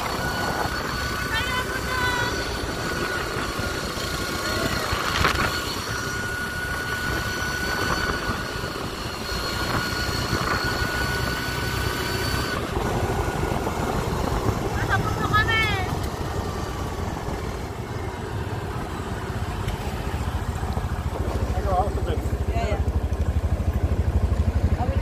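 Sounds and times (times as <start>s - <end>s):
thin high whine: 0.0s - 12.8s
wind rushing over microphone: 0.0s - 19.4s
engine and tyre noise: 0.0s - 25.0s.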